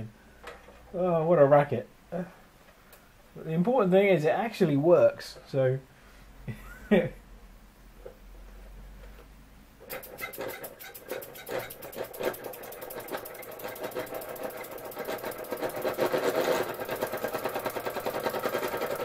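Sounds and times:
toy steam engine clattering: 0:09.8 - 0:19.0
tin parts rattling: 0:09.9 - 0:16.8.

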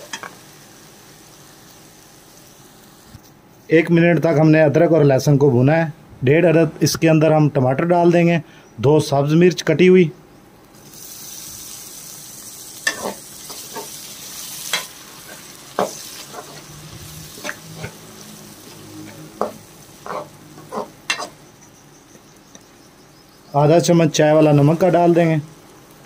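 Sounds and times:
vegetables sizzling in oil: 0:00.0 - 0:03.2, 0:10.7 - 0:26.0.

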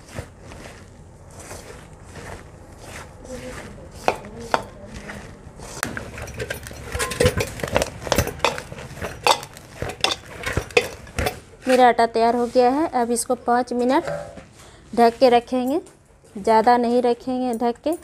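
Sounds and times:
hands squishing dough: 0:00.0 - 0:13.0
metallic clinks against bowl: 0:06.1 - 0:11.1.

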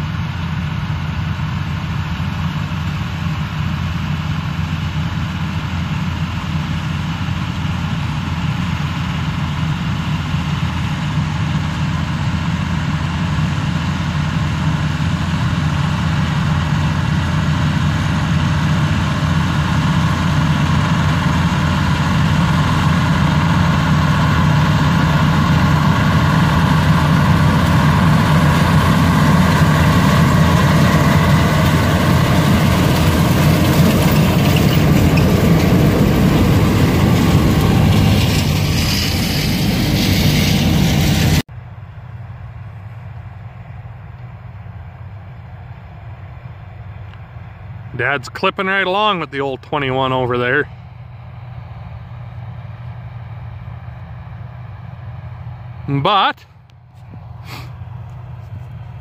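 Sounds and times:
combine harvester engine drone: 0:00.0 - 0:59.0.

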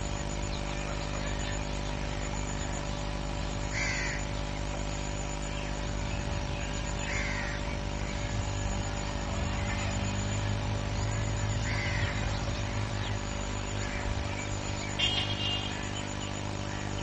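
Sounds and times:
steady low hum: 0:00.0 - 0:17.0
bird calls: 0:03.7 - 0:17.0.

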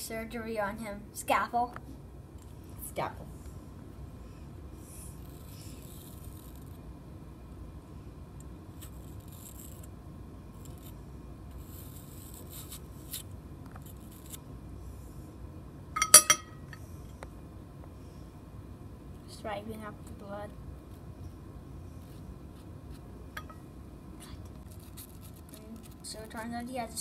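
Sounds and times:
knife scraping apple flesh: 0:08.8 - 0:09.9, 0:10.6 - 0:14.4, 0:24.2 - 0:26.5.

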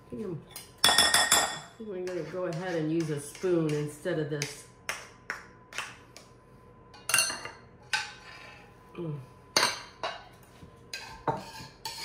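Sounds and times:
metal spoon scraping a pot: 0:10.9 - 0:12.0.

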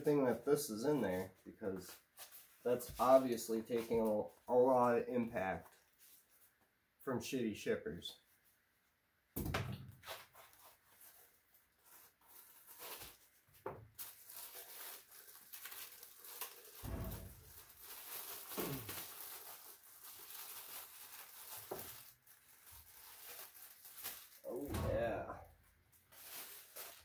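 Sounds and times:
plastic bag crinkling: 0:10.1 - 0:25.2, 0:25.9 - 0:27.0.

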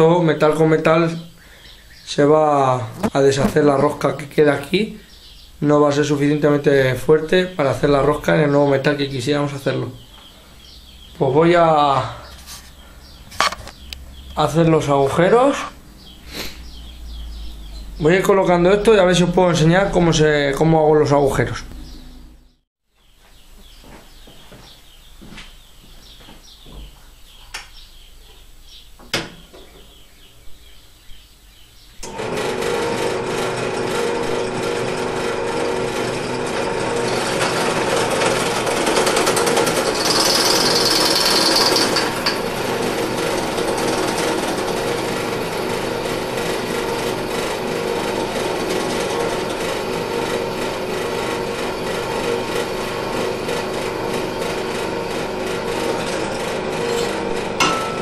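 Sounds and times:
drill press drilling metal: 0:32.0 - 0:58.0.

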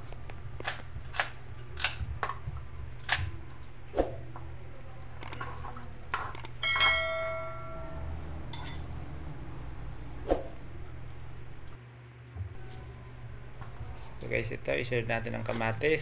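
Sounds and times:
glass bowl struck and ringing: 0:06.6 - 0:08.9.

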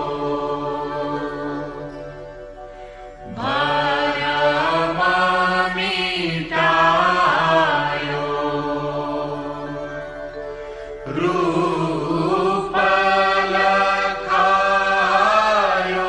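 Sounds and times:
person singing a chanted melody: 0:00.0 - 0:16.0
steady drone: 0:00.0 - 0:16.0.

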